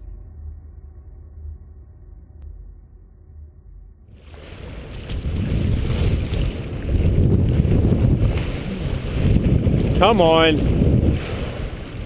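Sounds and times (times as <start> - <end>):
wind buffeting microphone: 4.2 - 12.0
sea waves washing on rocks: 4.3 - 12.0.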